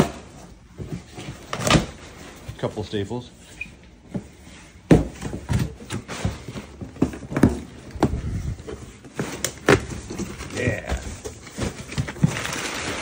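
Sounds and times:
packing paper rustling: 0:05.8 - 0:13.0.

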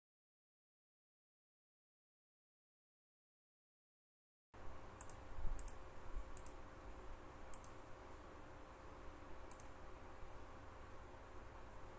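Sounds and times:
faint steady hum: 0:04.6 - 0:11.9
computer mouse clicking: 0:05.0 - 0:06.6, 0:07.5 - 0:07.9, 0:09.4 - 0:09.8.

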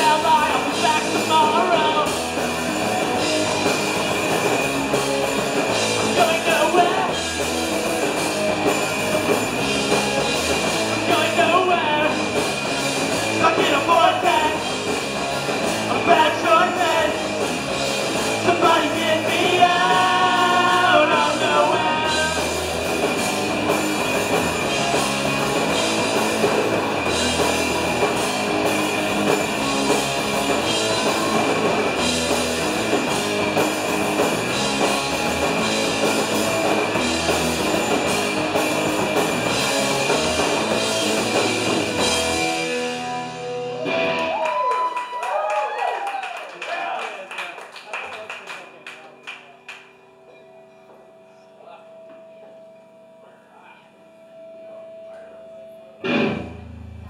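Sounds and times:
punk rock band playing: 0:00.0 - 0:45.4, 0:56.0 - 0:57.0
person singing: 0:18.4 - 0:22.6.

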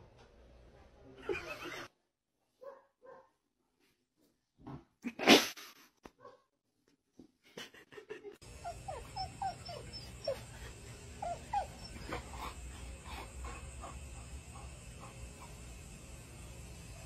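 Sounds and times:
steady low hum: 0:08.4 - 0:17.0
dog whimpering: 0:08.6 - 0:12.6.

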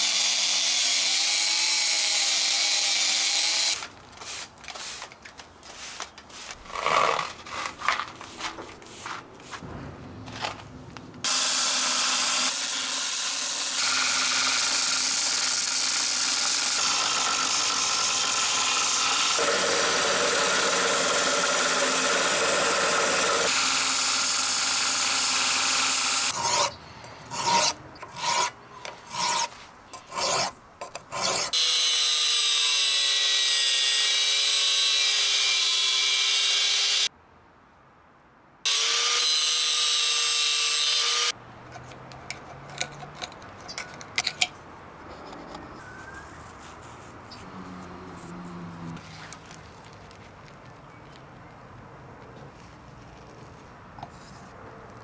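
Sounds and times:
belt grinder grinding steel: 0:00.0 - 0:03.9, 0:11.3 - 0:28.5, 0:31.1 - 0:37.1, 0:38.7 - 0:41.4
angle grinder on steel: 0:00.0 - 0:05.1, 0:11.2 - 0:37.1, 0:38.7 - 0:41.4
scraping strokes: 0:04.1 - 0:09.7
broom sweeping grit on tiles: 0:04.2 - 0:05.0, 0:05.7 - 0:06.7, 0:07.5 - 0:09.6.

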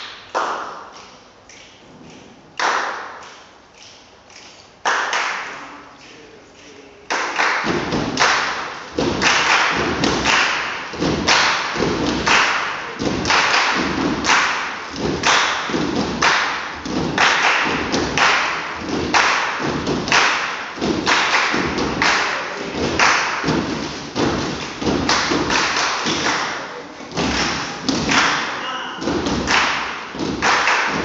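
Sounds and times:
sharp hand claps: 0:00.0 - 0:31.0.

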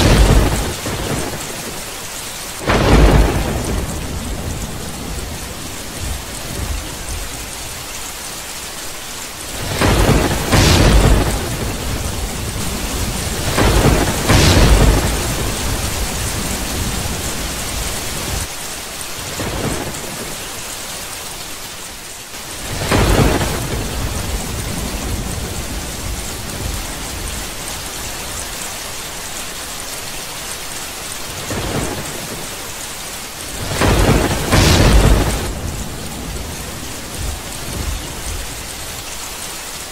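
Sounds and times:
thunder rumbling: 0:00.0 - 0:01.9, 0:02.6 - 0:07.9, 0:09.5 - 0:18.5, 0:22.6 - 0:28.4, 0:33.4 - 0:39.3
heavy rain: 0:00.0 - 0:39.9.

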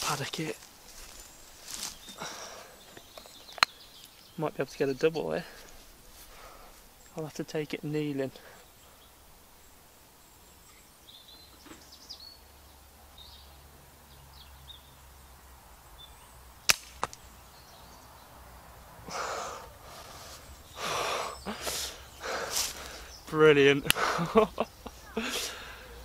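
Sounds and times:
rustling: 0:00.0 - 0:02.2, 0:21.5 - 0:25.7
small birds chirping: 0:00.0 - 0:26.0
air rifle shot: 0:16.7 - 0:17.2.

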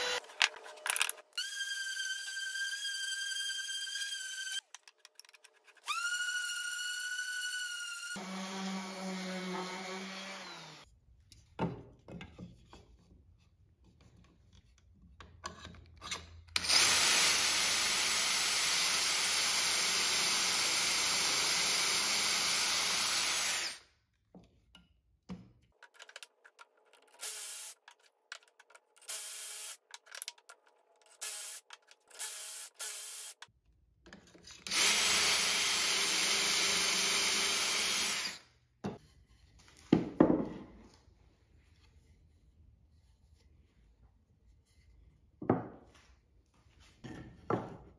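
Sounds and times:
cordless drill boring into wood: 0:00.0 - 0:00.2, 0:05.8 - 0:10.8, 0:16.6 - 0:23.8, 0:27.2 - 0:27.8, 0:29.1 - 0:29.8, 0:31.2 - 0:31.6, 0:32.2 - 0:33.4, 0:34.7 - 0:38.4.

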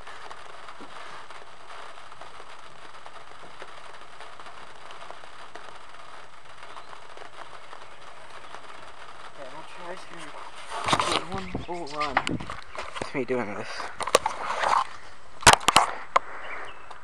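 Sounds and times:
rain pattering on car roof: 0:00.0 - 0:17.0.

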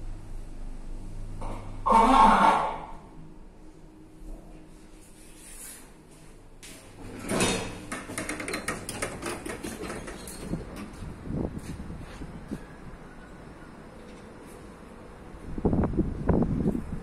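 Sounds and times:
elevator doors sliding open: 0:07.0 - 0:11.8.

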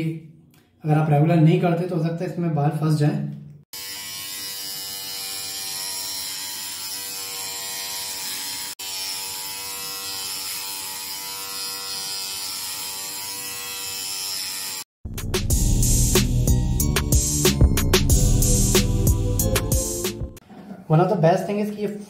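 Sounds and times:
body trimmer buzzing: 0:03.8 - 0:14.9.

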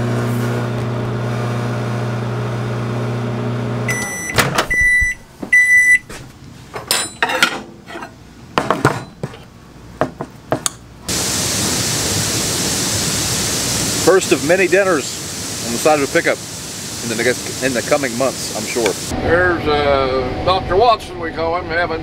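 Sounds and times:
microwave oven humming: 0:00.0 - 0:06.1
outdoor air noise: 0:00.0 - 0:22.0
microwave beeps: 0:03.8 - 0:06.1.

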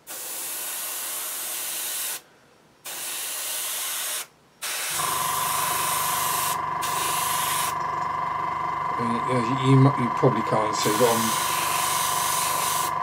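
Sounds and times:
airbrush spraying hiss: 0:00.0 - 0:02.2, 0:02.8 - 0:07.8, 0:10.8 - 0:12.9
compressor motor humming: 0:04.9 - 0:13.0.

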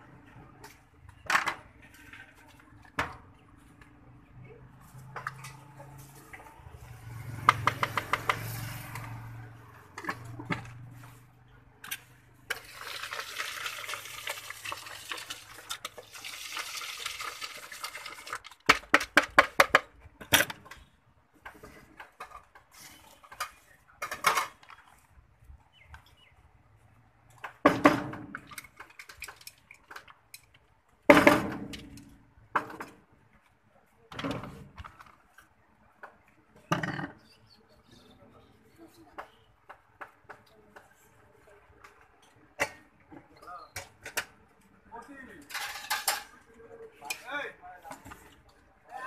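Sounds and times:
puffed rice shaken in plastic jug: 0:12.6 - 0:18.5.

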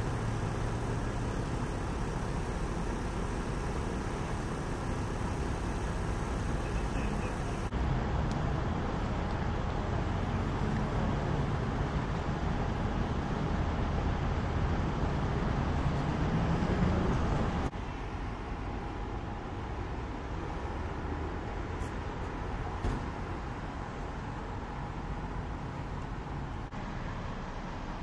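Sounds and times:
emergency vehicles idling: 0:00.0 - 0:07.8, 0:17.0 - 0:28.0
low rumble of road traffic: 0:00.0 - 0:28.0.

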